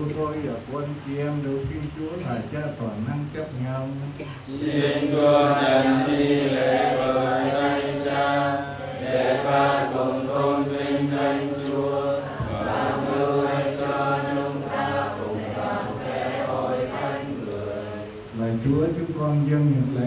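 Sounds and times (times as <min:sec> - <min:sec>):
group singing a chant: 0:04.5 - 0:18.7.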